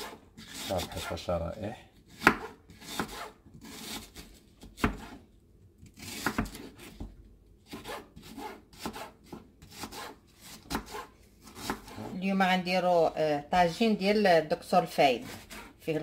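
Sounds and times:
knife slicing onion: 0.0 - 1.3, 2.0 - 12.2, 15.1 - 15.8.

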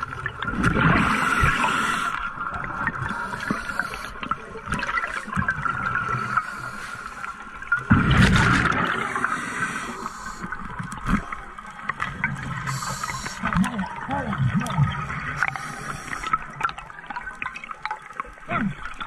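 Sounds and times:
exhaled bubbles rushing: 0.0 - 6.6, 7.6 - 9.9, 10.5 - 19.0
underwater hiss: 0.9 - 2.4, 3.0 - 4.3, 6.0 - 7.5, 8.7 - 10.8, 12.4 - 13.5, 15.1 - 16.6
diver breathing through regulator: 1.0 - 2.3, 3.1 - 4.2, 9.0 - 10.6, 12.6 - 13.4, 15.4 - 16.6.

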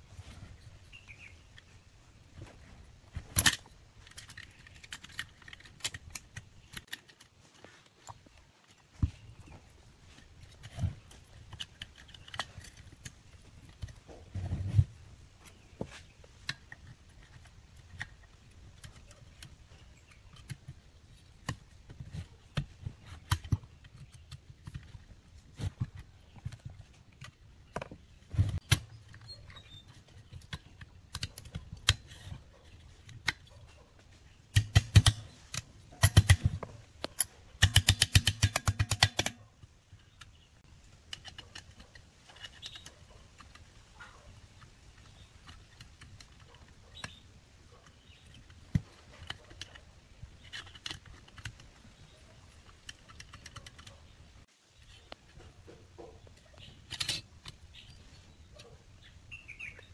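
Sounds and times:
screwdriver clicking on metal parts: 3.1 - 7.3, 10.4 - 14.0, 34.5 - 39.4, 41.0 - 43.7, 44.6 - 54.1, 56.6 - 58.0.

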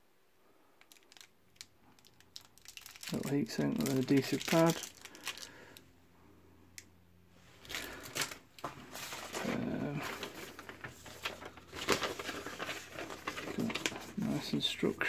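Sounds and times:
paper and cardboard rustling: 7.6 - 15.0.

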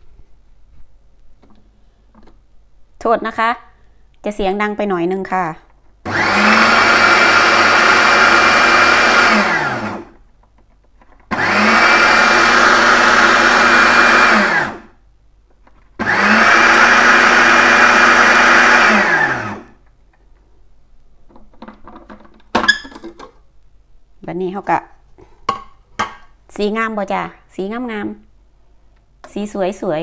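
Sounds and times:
food processor blending: 6.1 - 10.2, 11.3 - 15.0, 16.0 - 19.8.

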